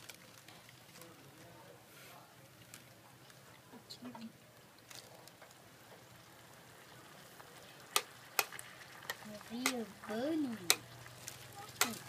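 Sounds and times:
food sizzling in a pan: 0:05.4 - 0:12.0
chopsticks clicking against pan: 0:11.8 - 0:12.0.

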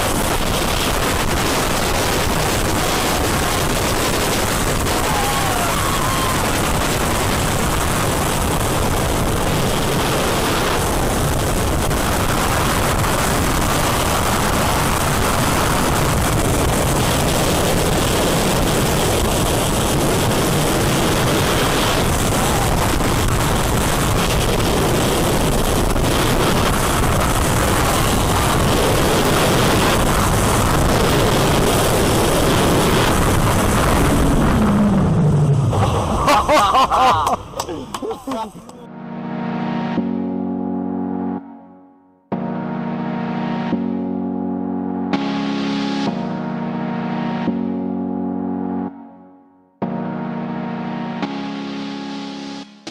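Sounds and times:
loud wind noise: 0:00.0 - 0:38.3
roller coaster rumbling on track: 0:00.0 - 0:38.9.

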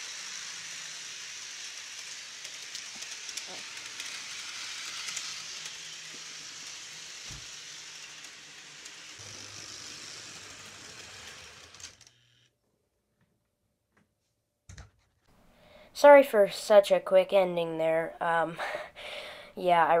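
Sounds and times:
model train running on track: 0:00.0 - 0:12.4.

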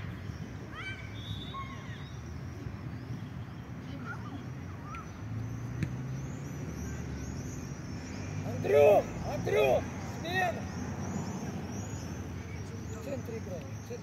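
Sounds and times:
low road traffic rumble: 0:00.0 - 0:14.0
faint distant shouts: 0:00.1 - 0:02.2, 0:08.4 - 0:10.7.

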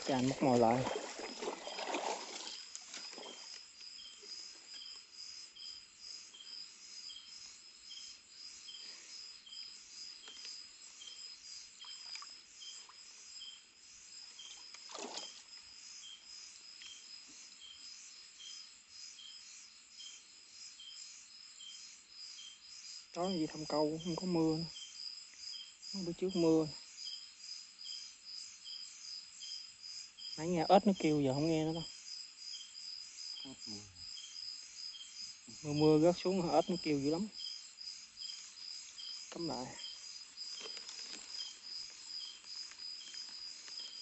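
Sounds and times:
insect short chirps: 0:00.0 - 0:44.0
insect steady high trill: 0:00.0 - 0:44.0
soft rustle: 0:38.2 - 0:44.0.

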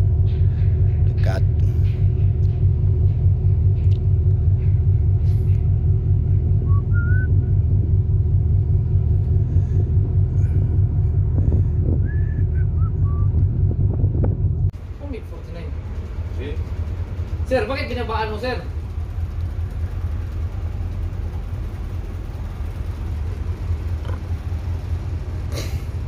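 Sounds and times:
ship engine low rumble: 0:00.0 - 0:26.0.

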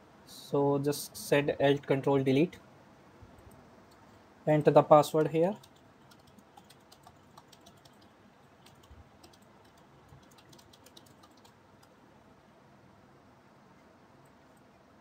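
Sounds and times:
faint keyboard typing: 0:03.3 - 0:04.2, 0:05.1 - 0:12.0.

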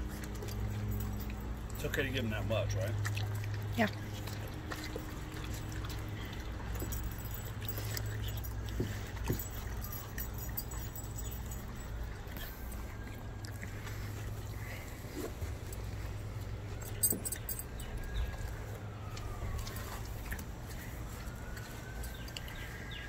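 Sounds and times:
dog chewing: 0:00.0 - 0:23.0
chain collar jingling: 0:00.2 - 0:02.7, 0:06.6 - 0:12.4, 0:16.7 - 0:18.2.

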